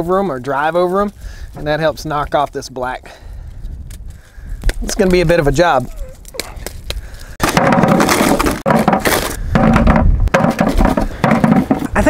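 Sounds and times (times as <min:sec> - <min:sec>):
nut hulls crunching and cracking: 0:03.7 - 0:09.6.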